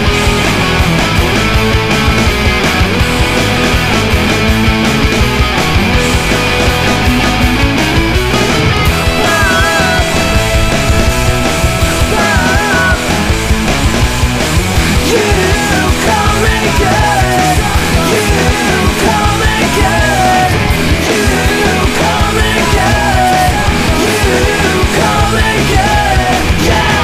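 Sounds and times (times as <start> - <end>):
punk rock music: 0.0 - 27.0.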